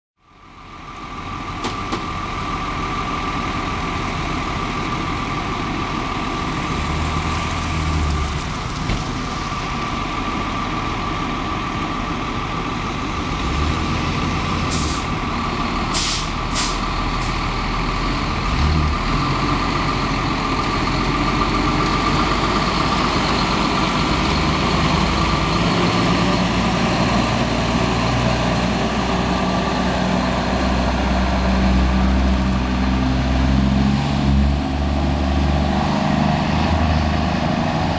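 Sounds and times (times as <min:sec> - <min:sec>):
truck engine running: 0:00.3 - 0:33.7
air brakes hissing: 0:14.7 - 0:15.2, 0:15.9 - 0:17.5.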